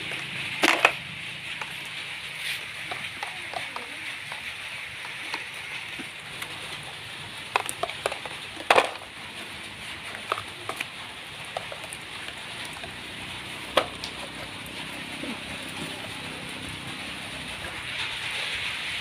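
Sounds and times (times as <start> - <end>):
plastic toy clicks and knocks: 0.6 - 1.0, 2.9 - 6.6, 7.4 - 9.2, 10.1 - 12.9.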